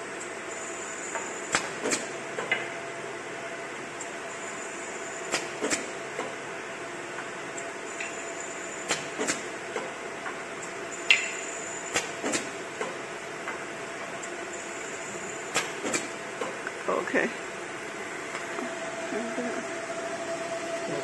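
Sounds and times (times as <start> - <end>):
machine humming: 6.0 - 21.0
thin high whine: 17.9 - 21.0.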